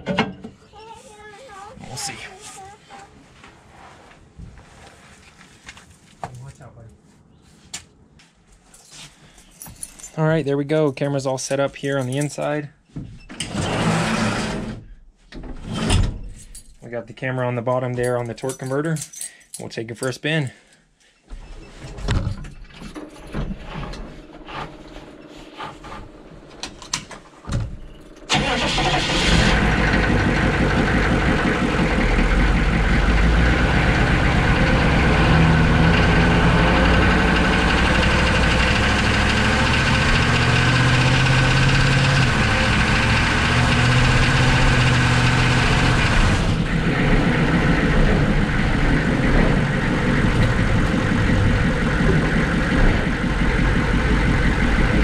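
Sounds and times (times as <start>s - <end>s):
truck engine revving: 13.5s - 14.8s, 28.3s - 55.0s.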